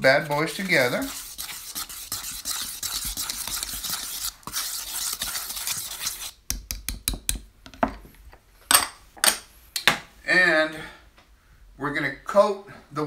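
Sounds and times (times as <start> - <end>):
whisk swishing in flour: 0.0 - 6.3
whisk tapping against bowl: 0.5 - 7.4.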